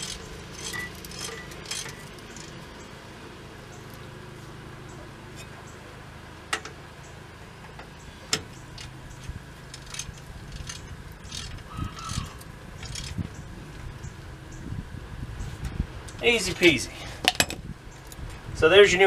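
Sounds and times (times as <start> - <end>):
wrench clinking and scraping on metal: 0.0 - 2.6, 8.7 - 13.2.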